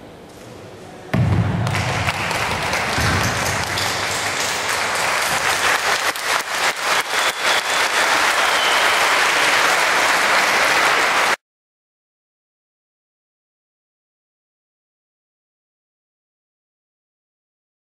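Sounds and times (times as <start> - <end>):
sharp claps: 1.6 - 11.4
audience applauding: 1.7 - 11.4.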